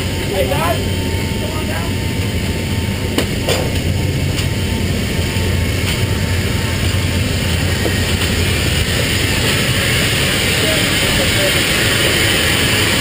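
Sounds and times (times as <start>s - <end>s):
aircraft engine drone: 0.0s - 13.0s.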